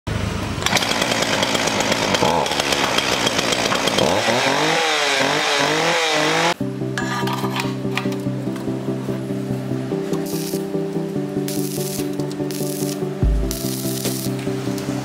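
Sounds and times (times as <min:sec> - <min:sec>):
chainsaw engine revving: 0:00.2 - 0:06.6.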